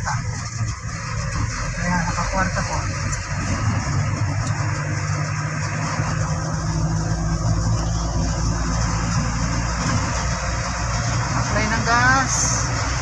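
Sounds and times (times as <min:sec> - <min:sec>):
car engine running steadily: 0:00.0 - 0:13.0
road and tyre noise: 0:00.0 - 0:13.0.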